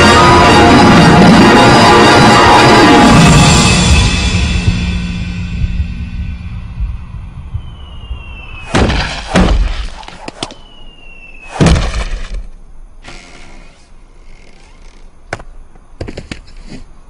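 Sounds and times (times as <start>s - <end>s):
short falling whistle: 7.6s - 8.8s, 10.4s - 11.6s
house crashing to the ground: 8.7s - 9.9s, 11.6s - 12.5s.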